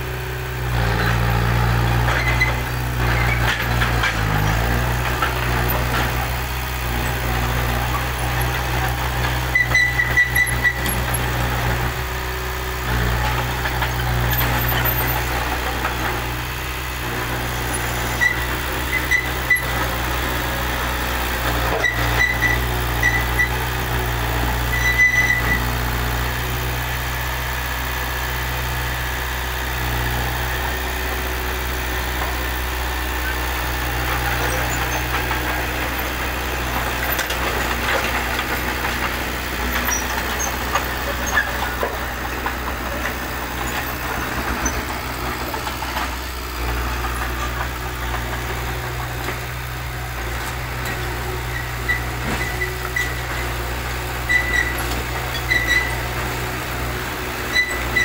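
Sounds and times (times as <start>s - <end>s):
bulldozer diesel engine running: 0.0s - 58.0s
short high squeaks: 9.4s - 11.2s, 18.1s - 19.8s, 24.7s - 25.7s, 39.7s - 44.0s, 51.3s - 53.6s, 54.2s - 56.2s, 57.5s - 58.0s.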